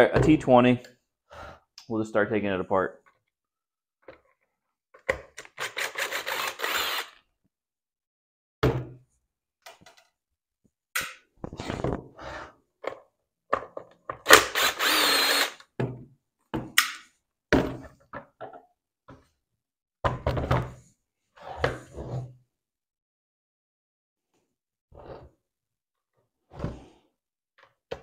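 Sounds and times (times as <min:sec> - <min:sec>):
impact driver running: 0:05.6 - 0:07.2, 0:14.3 - 0:15.6.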